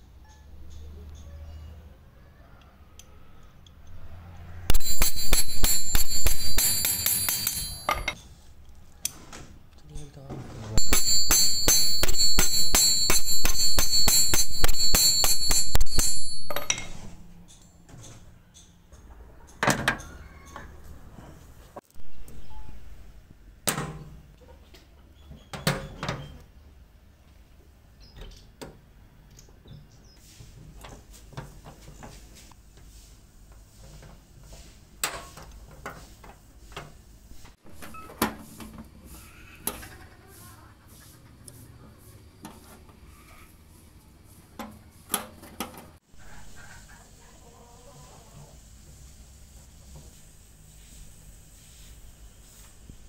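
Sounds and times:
hammer striking steel pin: 4.7 - 8.2, 10.8 - 17.1
metal jack parts clinking: 4.7 - 8.2, 10.8 - 17.1
sharp metallic knocks: 4.7 - 8.2, 10.8 - 17.2.

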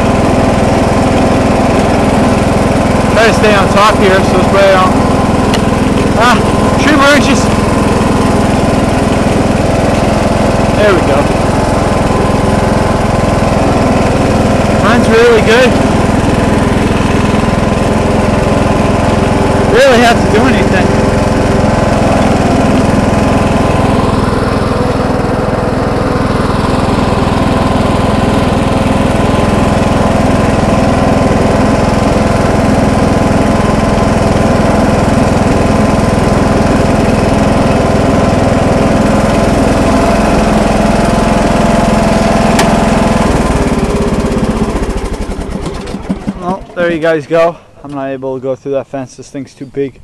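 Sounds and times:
riding lawn tractor engine: 0.0 - 49.8.

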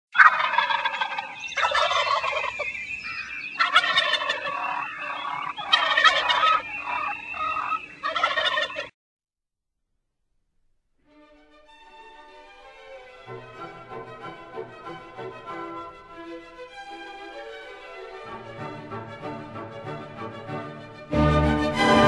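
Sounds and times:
turkey gobbling: 0.2 - 8.9.

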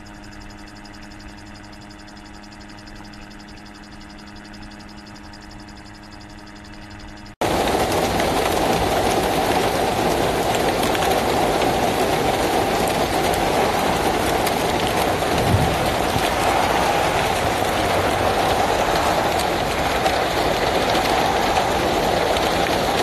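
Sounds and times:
steady low hum: 0.0 - 23.0
hail and rain pelting ground: 7.4 - 23.0.

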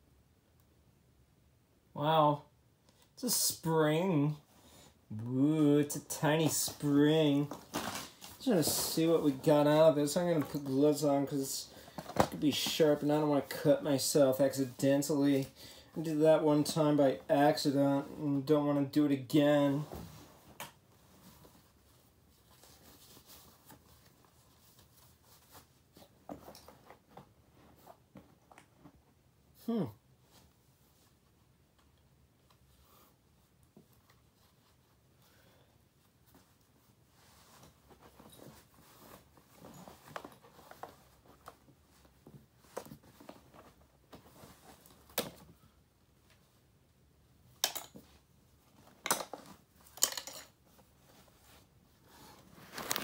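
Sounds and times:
rustling of broken plastic pieces: 48.8 - 50.8, 52.5 - 53.0.

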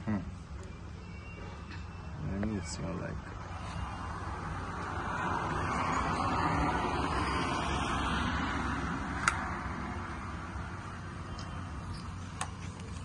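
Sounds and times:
road traffic noise: 0.0 - 13.0.

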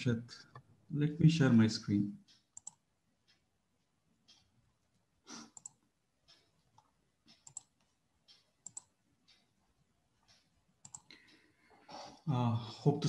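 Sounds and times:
computer mouse clicks: 2.2 - 3.4, 5.3 - 9.5, 10.2 - 11.4.

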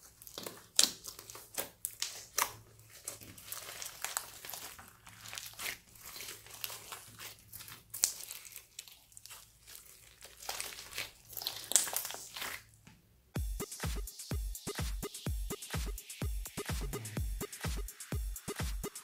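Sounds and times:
slime squelching and crackling: 0.0 - 12.8.

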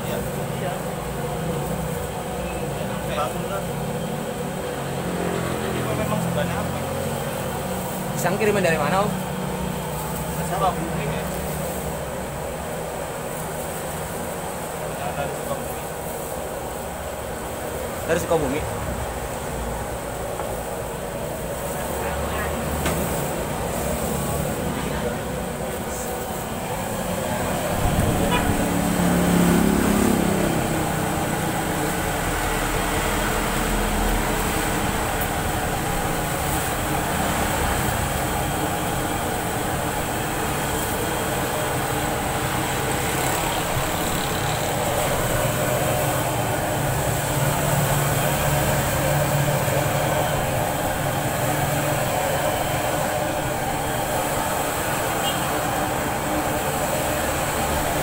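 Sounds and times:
roadside traffic noise: 0.0 - 58.0
passing vehicle rumble: 4.3 - 8.7, 18.0 - 58.0.

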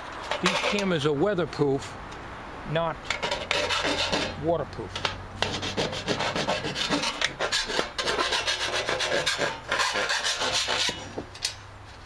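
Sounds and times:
hand file rasping on sheet metal: 0.3 - 0.9, 3.1 - 4.4, 5.0 - 11.1.

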